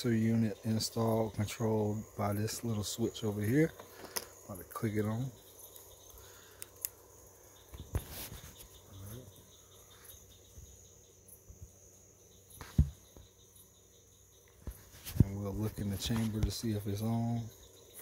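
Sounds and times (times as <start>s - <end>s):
crickets chirping: 0.0s - 18.0s
thump: 12.6s - 13.0s.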